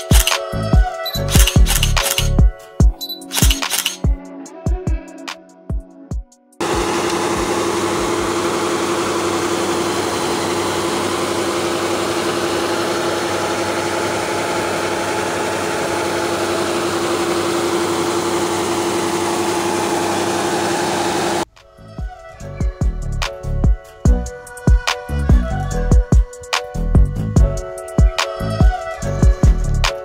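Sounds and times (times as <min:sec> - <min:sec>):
diesel engine running steadily: 0:06.6 - 0:21.5.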